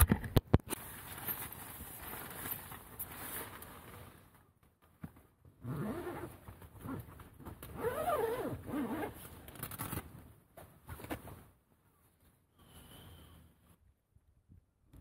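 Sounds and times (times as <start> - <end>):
tent zipper being opened: 5.6 - 10.0.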